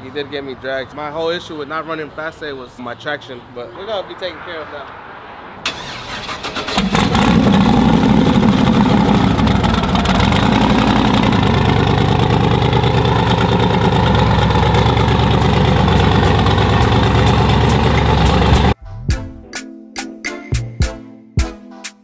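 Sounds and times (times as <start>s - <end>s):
engine cranking: 5.7s - 18.8s
truck engine idling: 5.7s - 18.8s.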